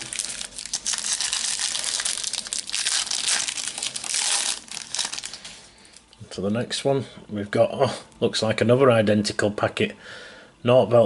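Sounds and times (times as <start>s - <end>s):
foil packet crinkling: 0.0s - 6.1s.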